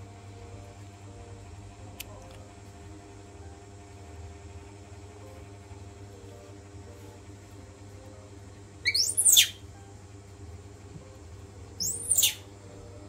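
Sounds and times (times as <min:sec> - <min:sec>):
steady low hum: 0:00.0 - 0:13.0
baby monkey squealing: 0:08.8 - 0:09.6, 0:11.8 - 0:12.4.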